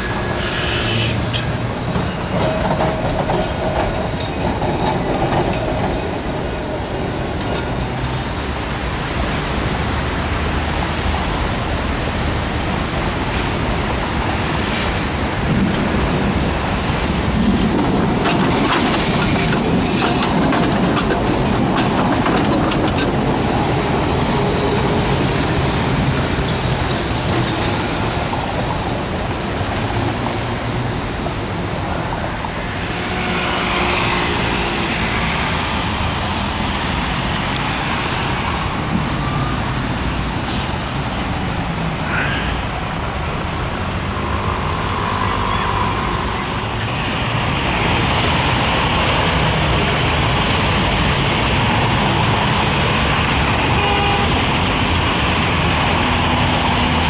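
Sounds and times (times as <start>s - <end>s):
road traffic rumbling: 0.0s - 57.0s
steel wheels clicking over rail joints: 1.4s - 6.4s, 17.0s - 28.6s.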